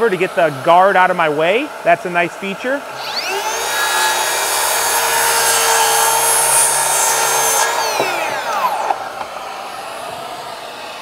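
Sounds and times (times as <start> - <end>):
circular saw cutting wood: 0.0 - 11.0
dust extractor running: 0.2 - 11.0
saw motor winding down: 2.8 - 11.0.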